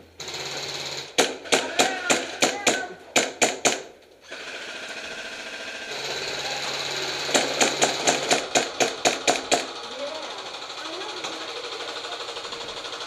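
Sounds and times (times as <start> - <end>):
airsoft single shots: 1.1 - 4.0, 7.3 - 9.7
airsoft rifle buzzing rattle: 4.2 - 13.0.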